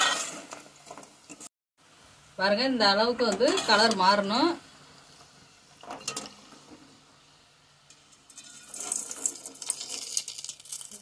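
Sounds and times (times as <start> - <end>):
metal scrape against pan: 0.0 - 0.6, 3.4 - 4.0, 7.9 - 10.3
oil sizzling and bubbling: 0.0 - 11.0.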